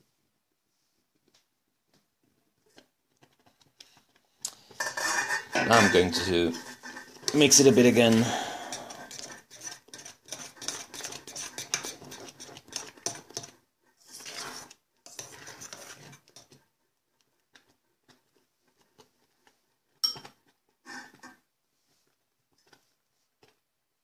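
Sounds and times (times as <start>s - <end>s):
spoon scraping metal saucepan: 4.6s - 16.6s, 20.0s - 21.4s.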